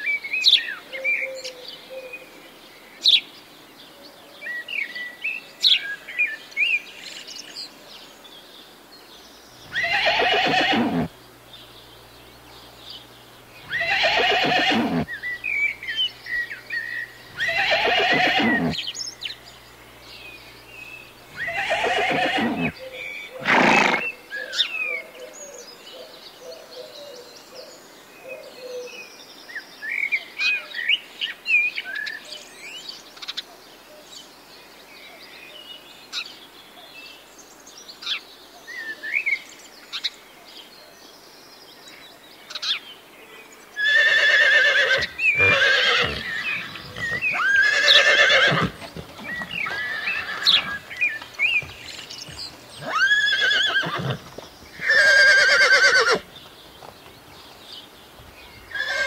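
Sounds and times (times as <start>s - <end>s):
small birds chirping: 4.4s - 59.0s
horses whinnying: 9.7s - 11.2s, 13.6s - 15.2s, 17.3s - 18.9s, 21.3s - 22.8s, 23.4s - 24.1s, 43.8s - 56.3s, 58.7s - 59.0s.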